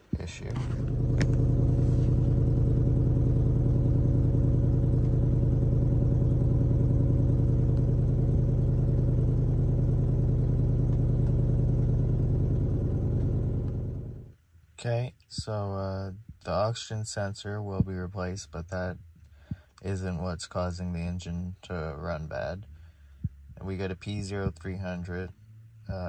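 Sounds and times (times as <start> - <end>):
car engine idling: 0.0 - 14.4.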